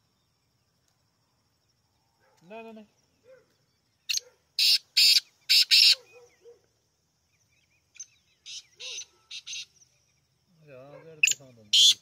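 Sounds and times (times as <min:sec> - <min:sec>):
bird calling harsh rasping notes: 0:04.1 - 0:06.4, 0:07.9 - 0:09.8, 0:11.2 - 0:12.0.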